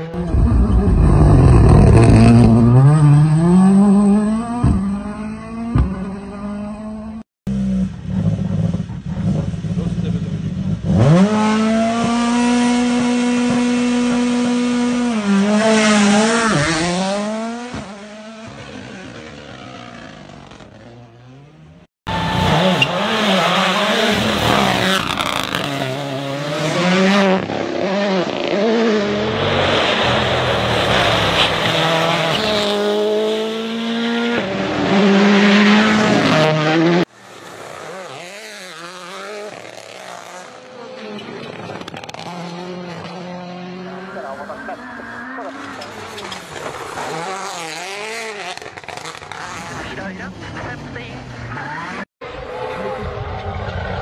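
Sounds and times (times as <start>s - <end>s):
rally car engine revving: 0.0s - 54.0s
rally car racing past: 52.2s - 54.0s.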